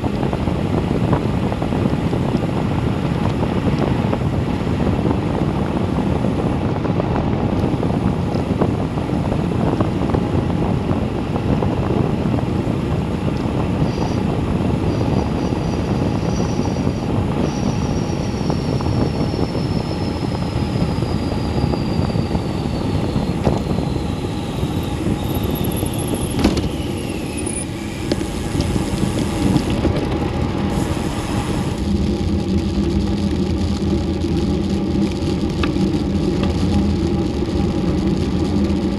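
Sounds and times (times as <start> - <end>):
bicycle tyre noise: 0.0 - 38.9
wind rushing over microphone: 0.0 - 38.9
faint high whine: 13.8 - 38.9.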